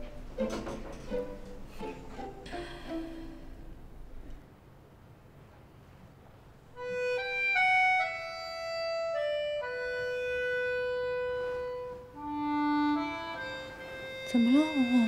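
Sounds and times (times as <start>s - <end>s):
slow melody of held notes: 6.8s - 15.0s.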